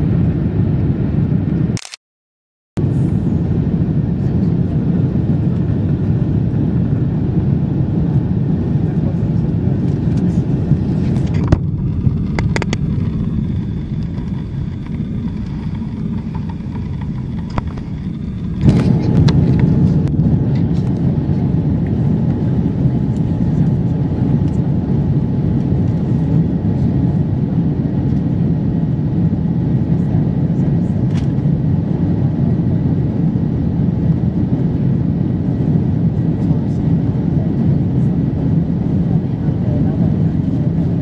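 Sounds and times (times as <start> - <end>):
aircraft cabin engine rumble: 0.0 - 1.8, 2.8 - 41.0
sharp clicks: 1.8 - 2.0.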